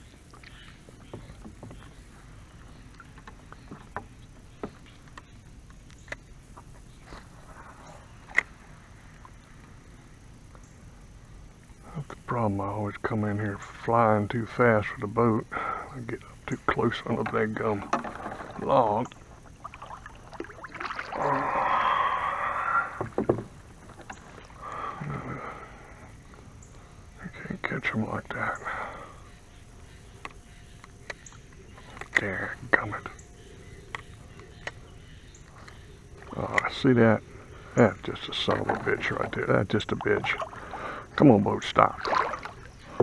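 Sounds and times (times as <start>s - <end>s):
paddle knocking against canoe hull: 0.3s - 5.4s, 17.1s - 21.1s, 22.9s - 24.4s, 38.4s - 40.8s
paddle knocks: 0.9s - 2.1s, 17.1s - 19.0s, 23.0s - 24.2s
faint water swishing: 15.5s - 30.5s, 35.4s - 43.0s
paddle swishing through water: 17.8s - 24.9s, 38.4s - 41.2s, 41.8s - 43.0s.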